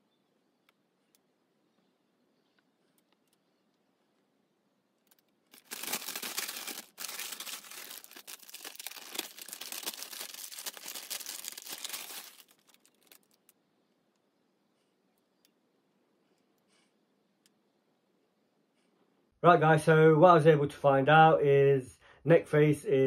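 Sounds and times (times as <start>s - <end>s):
tissue paper crinkling: 5.5s - 13.5s.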